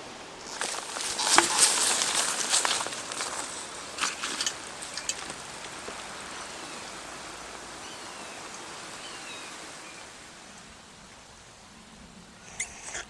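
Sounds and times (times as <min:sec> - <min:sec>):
breeze through hedges and trees: 0:00.0 - 0:13.0
faint high bird chirps: 0:12.4 - 0:13.0.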